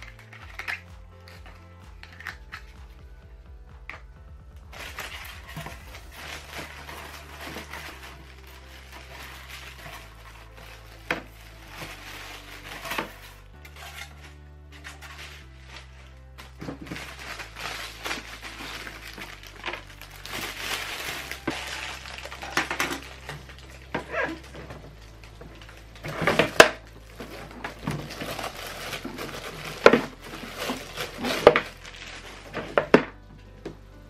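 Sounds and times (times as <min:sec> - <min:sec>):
plastic film crinkling: 0:00.0 - 0:03.2, 0:03.8 - 0:33.6.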